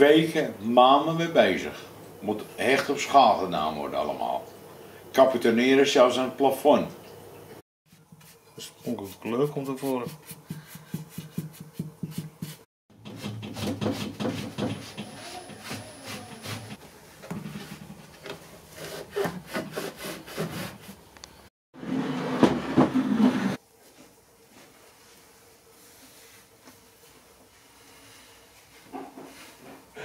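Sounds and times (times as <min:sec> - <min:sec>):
brush scrubbing on wood: 0:07.9 - 0:16.8
rubbing on wood: 0:07.9 - 0:16.8.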